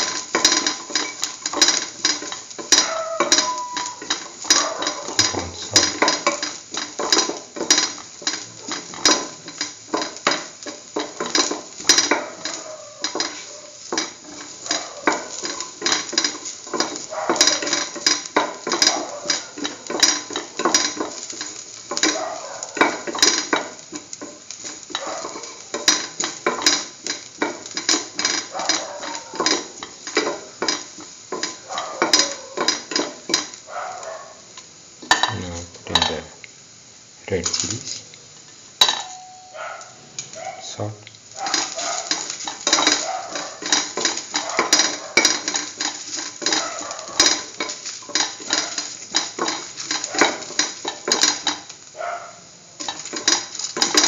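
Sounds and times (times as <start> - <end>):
oil sizzling: 0.0 - 54.0
metal spoon scraping pan: 41.4 - 51.7.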